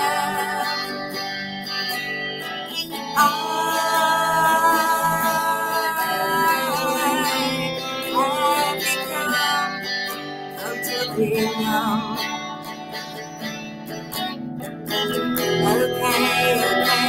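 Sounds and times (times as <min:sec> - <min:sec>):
woman singing: 0:00.0 - 0:01.4, 0:03.2 - 0:12.8, 0:15.6 - 0:17.0
strummed electric guitar: 0:00.0 - 0:17.0.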